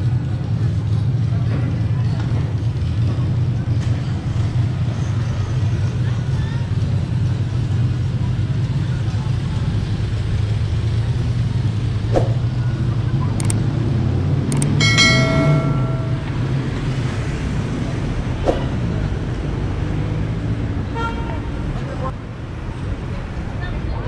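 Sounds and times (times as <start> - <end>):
cars passing and idling: 0.0 - 24.0
sharp clicks: 13.4 - 13.6, 14.5 - 14.8
brief pitched tone: 14.8 - 16.6.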